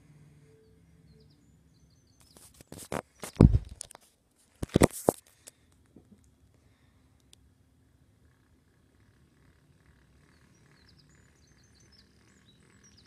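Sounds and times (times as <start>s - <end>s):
loud thump: 3.4s - 3.8s.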